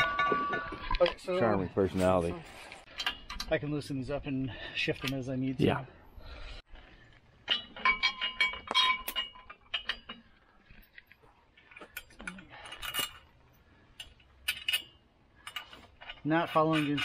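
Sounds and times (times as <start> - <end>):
metal bolt and nuts clinking: 0.0 - 3.8, 7.4 - 17.0.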